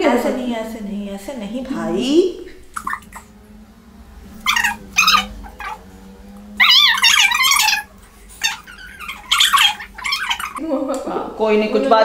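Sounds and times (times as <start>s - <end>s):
dog whining: 2.7s - 3.4s, 4.3s - 10.6s.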